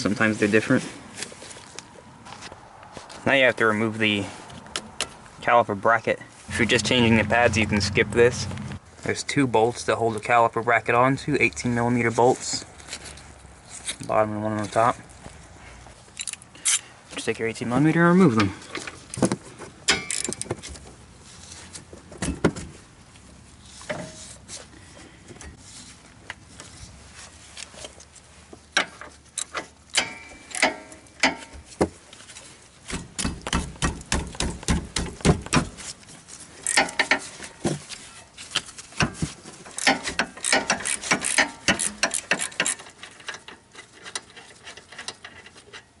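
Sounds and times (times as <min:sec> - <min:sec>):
socket ratchet clicking: 0:39.8 - 0:42.8.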